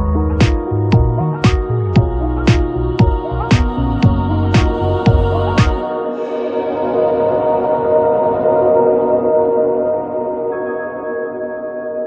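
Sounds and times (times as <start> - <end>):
drum beat: 0.0 - 5.8
held chords ringing: 0.0 - 12.0.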